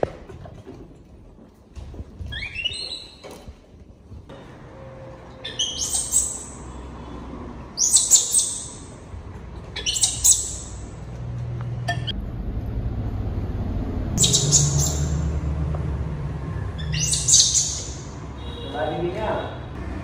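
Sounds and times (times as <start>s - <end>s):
baby monkey squealing: 2.3s - 3.2s, 5.4s - 6.8s, 7.8s - 9.0s, 9.7s - 10.9s, 14.2s - 15.3s, 16.8s - 18.2s.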